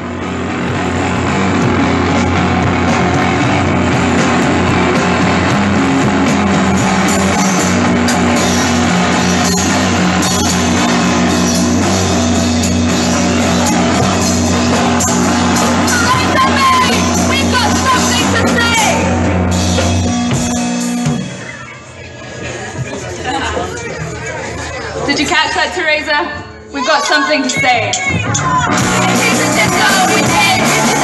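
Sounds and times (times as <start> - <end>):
electric guitar: 0.0 - 21.6, 28.2 - 31.0
drums: 0.0 - 31.0.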